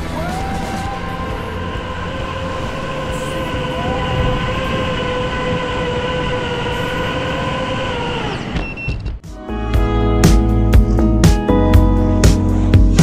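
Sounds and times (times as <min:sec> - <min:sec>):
propeller wash rushing: 0:00.0 - 0:08.6
drone motors whining: 0:00.0 - 0:09.2.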